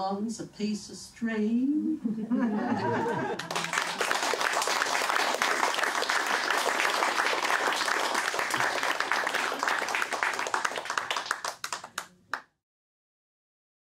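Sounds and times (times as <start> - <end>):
audience applauding: 3.2 - 12.4.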